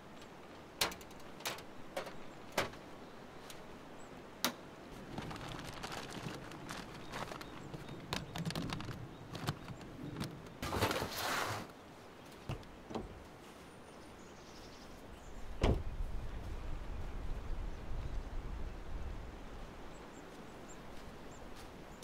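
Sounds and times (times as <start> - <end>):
plastic bin scraping: 5.1 - 11.7
truck door shutting: 15.6 - 15.8.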